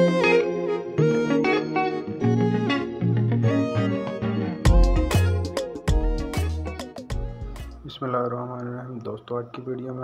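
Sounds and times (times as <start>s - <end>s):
picked melodic notes: 0.0s - 7.8s
heavy beats: 4.7s - 7.8s.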